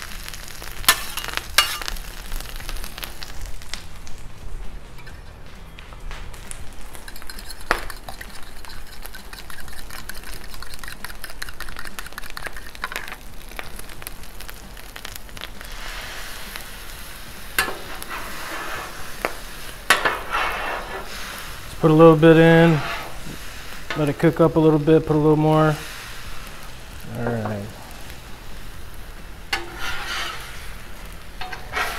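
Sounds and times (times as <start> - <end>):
food sizzling on griddle: 0.0 - 5.7, 6.3 - 31.9
fork whisking eggs in bowl: 7.1 - 12.8.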